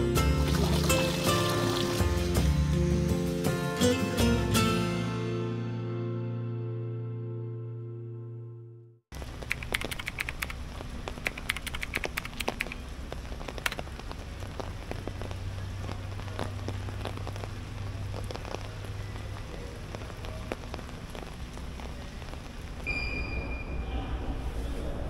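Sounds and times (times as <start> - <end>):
rain on wet pavement: 0.2 - 2.6, 9.2 - 22.9
drops ticking: 9.3 - 22.4.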